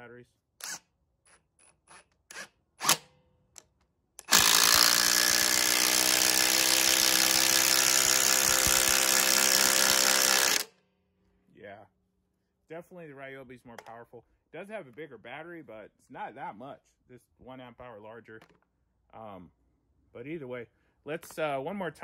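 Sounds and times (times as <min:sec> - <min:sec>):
impact driver hammering bolt: 0:02.1 - 0:10.7.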